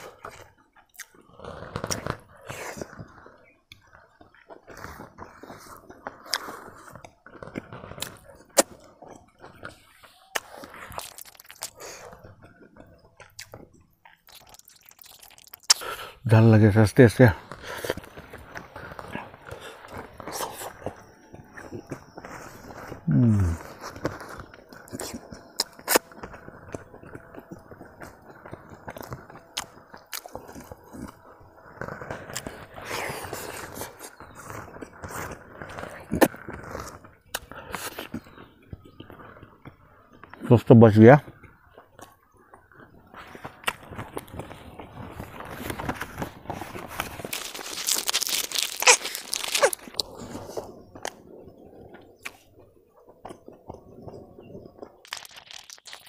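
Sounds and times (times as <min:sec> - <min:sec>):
person chewing food: 0:00.0 - 0:16.2, 0:17.4 - 0:39.7, 0:41.3 - 0:56.0
mouth clicks: 0:10.3 - 0:16.2, 0:47.3 - 0:51.2.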